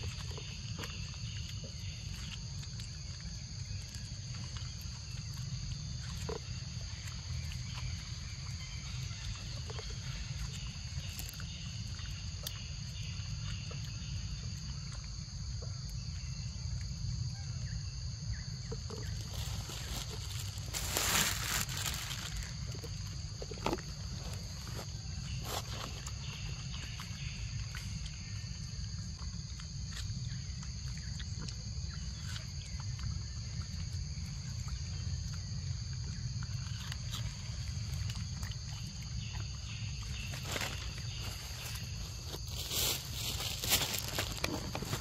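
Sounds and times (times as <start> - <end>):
insect drone: 0.0 - 45.0
soft steps in leaf litter: 18.8 - 27.9, 40.0 - 45.0
rustles in leaf litter: 19.2 - 26.2, 40.3 - 45.0.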